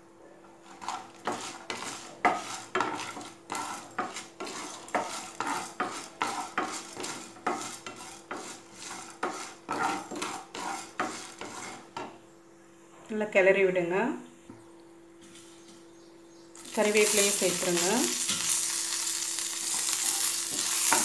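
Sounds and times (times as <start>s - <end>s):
wooden spatula scraping frying pan: 0.6s - 12.2s, 16.8s - 21.0s.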